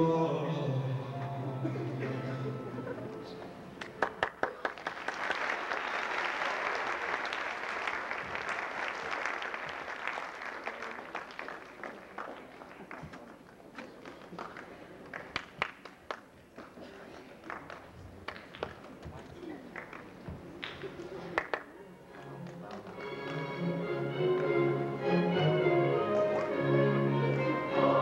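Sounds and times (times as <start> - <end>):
audience applause: 3.8 - 21.7.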